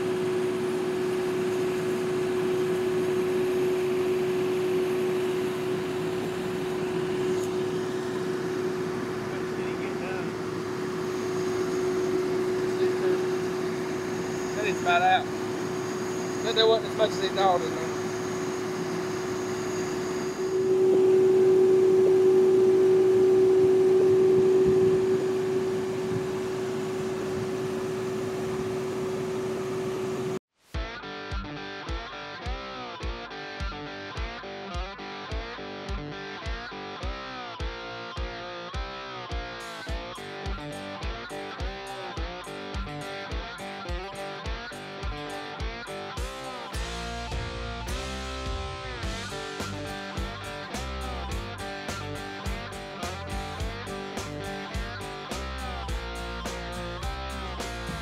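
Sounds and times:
vehicle cab drone: 0.0 - 30.4.

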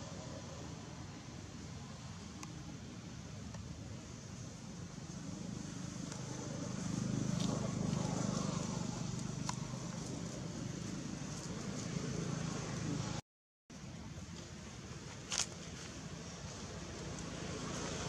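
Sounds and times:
low engine hum: 0.0 - 13.2.

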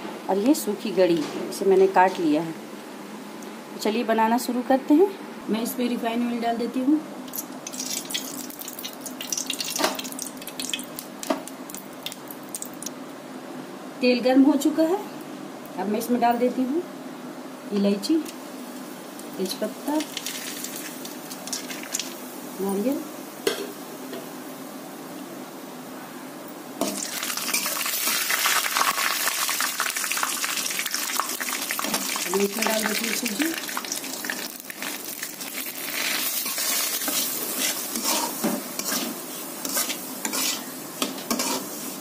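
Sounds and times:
coconut frying in hot oil: 7.3 - 13.0, 18.5 - 23.8, 26.8 - 42.0
metal spatula scraping pan: 36.3 - 41.8.

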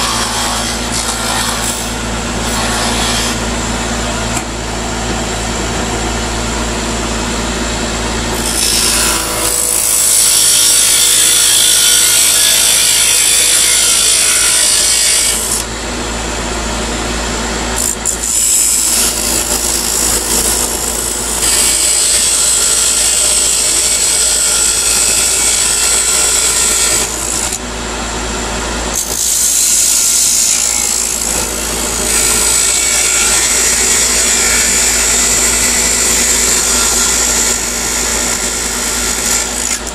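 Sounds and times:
wood lathe running: 8.3 - 15.7, 17.8 - 28.0, 28.7 - 39.9.

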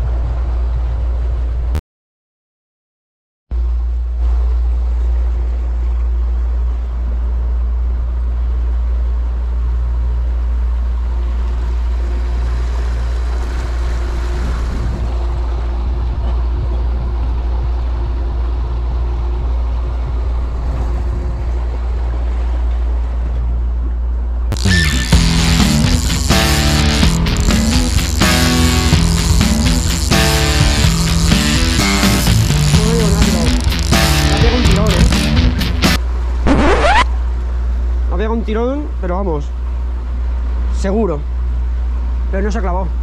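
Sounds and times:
outboard motor running: 3.5 - 43.0
boat wake rushing: 3.6 - 43.0
music: 24.6 - 36.0.

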